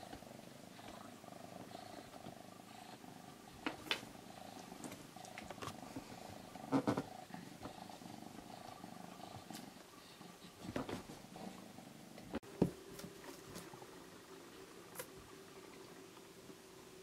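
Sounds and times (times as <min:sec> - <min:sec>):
cat purring: 0:00.0 - 0:12.4.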